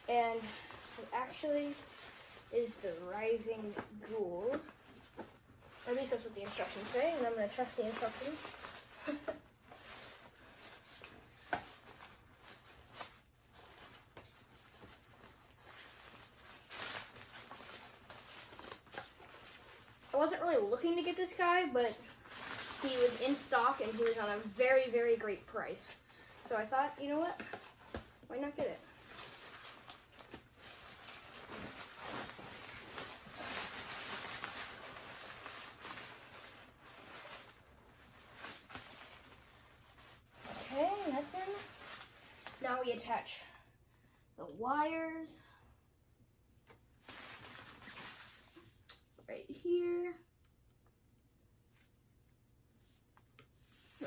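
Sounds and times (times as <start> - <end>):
fabric rustling: 26.6 - 42.8, 52.8 - 54.0.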